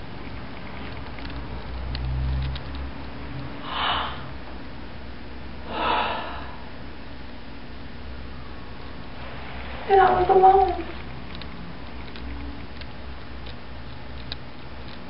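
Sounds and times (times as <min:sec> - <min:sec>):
woman gasping: 0:03.6 - 0:04.3, 0:05.7 - 0:06.6.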